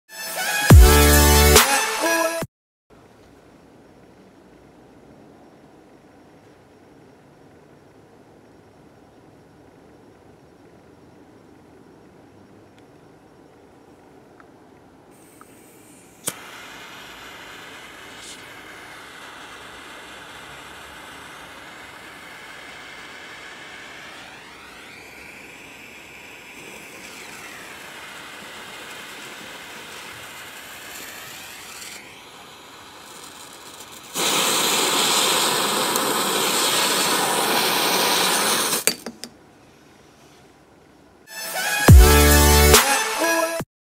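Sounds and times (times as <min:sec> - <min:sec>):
jet flame hissing: 0:15.1 - 0:39.0
firecracker fuse spitting sparks: 0:15.2 - 0:39.0, 0:41.3 - 0:43.6
jet lighter clicking alight: 0:15.3 - 0:38.9
firecracker cracks: 0:15.3 - 0:39.1.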